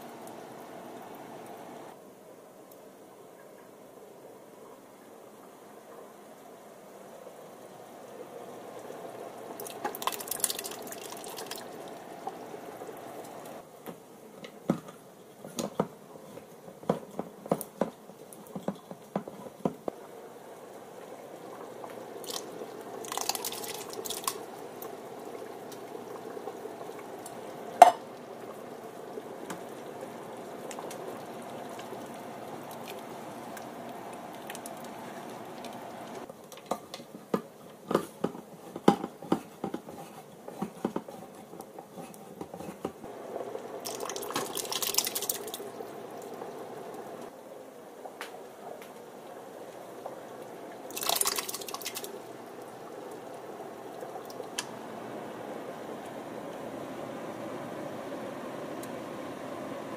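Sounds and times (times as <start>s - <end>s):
pot boiling: 0.0s - 59.9s
beans poured and splashing: 9.6s - 11.9s, 22.2s - 24.5s, 43.8s - 45.7s, 50.9s - 52.2s.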